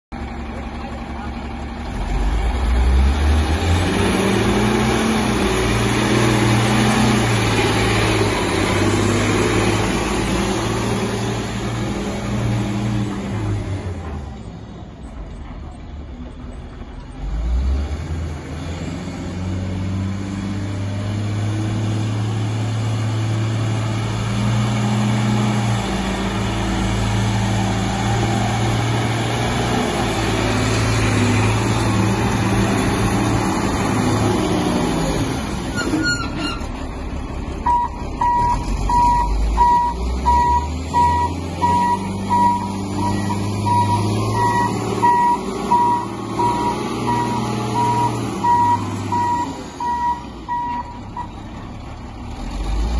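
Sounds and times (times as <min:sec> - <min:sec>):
diesel engine running: 0:00.1 - 0:52.9
reverse alarm beeping: 0:37.7 - 0:51.3.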